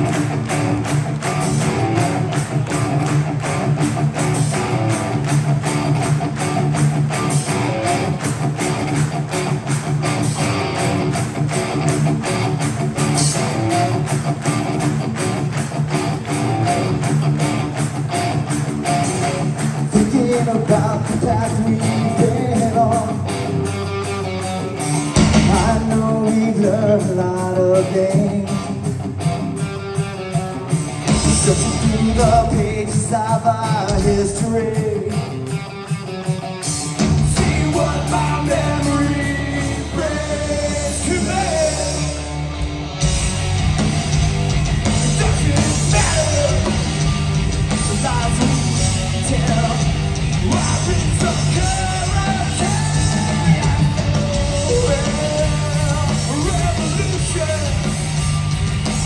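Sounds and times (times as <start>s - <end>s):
drums: 0.0s - 59.0s
electric guitars: 0.0s - 59.0s
person singing: 37.2s - 42.5s, 47.8s - 57.9s.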